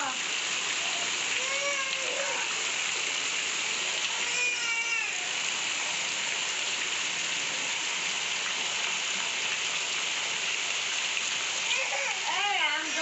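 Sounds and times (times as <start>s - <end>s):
steady rain falling: 0.0s - 13.0s
water pouring from drain spouts: 0.0s - 13.0s.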